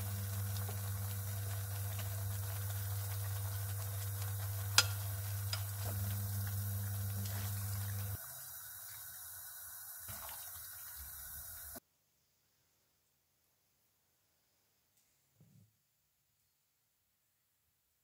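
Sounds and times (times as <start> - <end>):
steady low hum: 0.0 - 8.2
sauce sizzling in a pan: 0.0 - 11.8.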